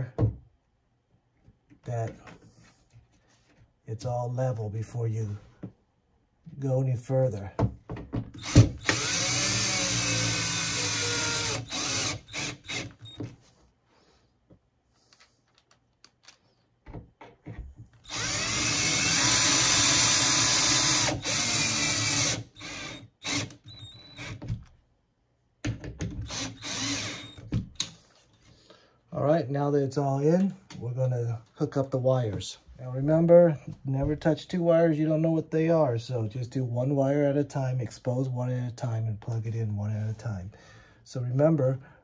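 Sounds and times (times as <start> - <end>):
cordless drill driving screws: 8.4 - 13.2, 18.0 - 24.5, 26.2 - 27.9.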